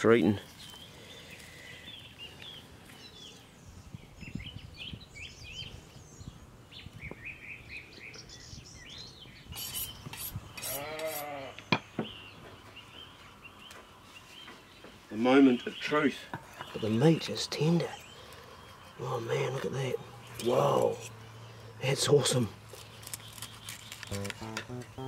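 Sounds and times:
small birds chirping: 0:00.0 - 0:25.0
sheep bleating: 0:10.6 - 0:11.6.

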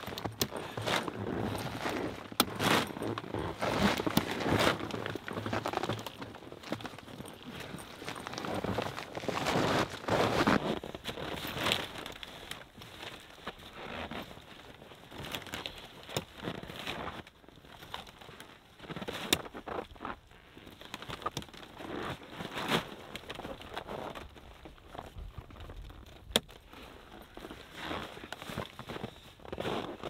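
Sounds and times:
canvas rustling: 0:00.0 - 0:30.0.

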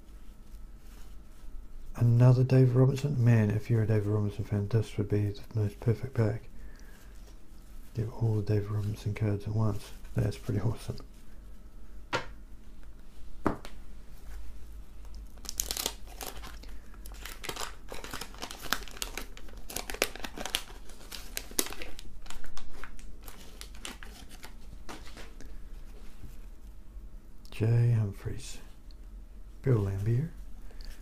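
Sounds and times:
wax paper wrapper crinkling and tearing: 0:15.0 - 0:25.9.

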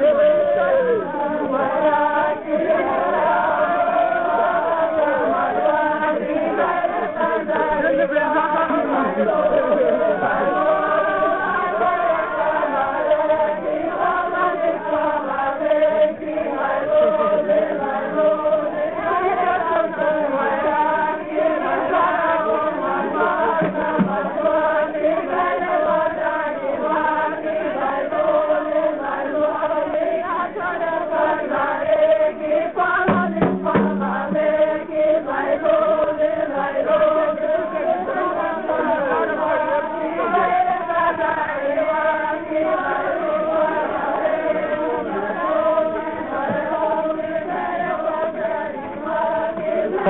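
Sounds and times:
voices singing a chant-like song: 0:00.0 - 0:50.0.

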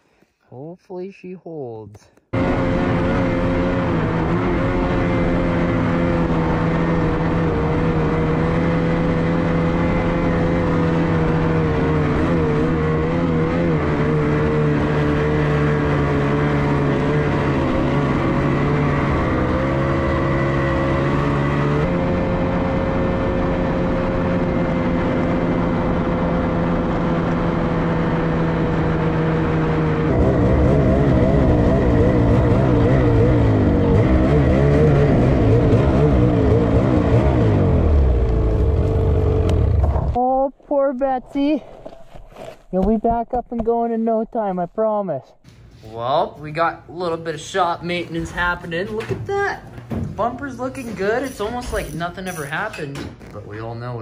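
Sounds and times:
snowmobile engine running: 0:02.4 - 0:41.6.

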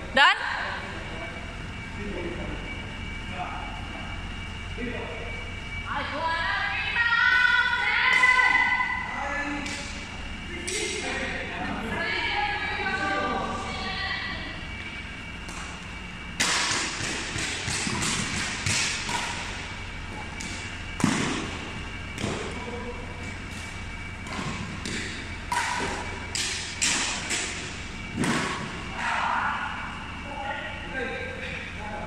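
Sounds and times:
rackets smacking shuttlecock: 0:09.6 - 0:11.0, 0:15.4 - 0:22.6, 0:23.2 - 0:29.2.

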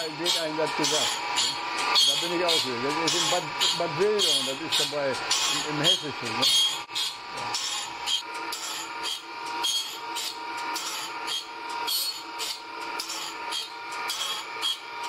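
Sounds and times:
grinding wheel rasping whine: 0:00.0 - 0:15.0.

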